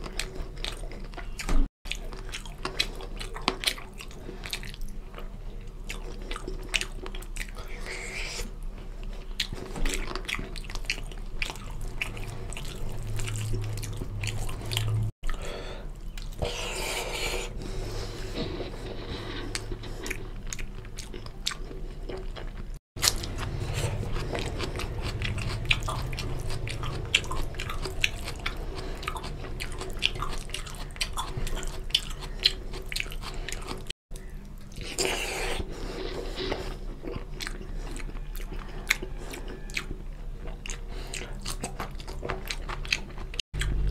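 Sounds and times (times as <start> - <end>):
wet chewing and lip-smacking: 0.0 - 15.4, 19.0 - 43.9
crunchy onion bites: 22.2 - 35.6.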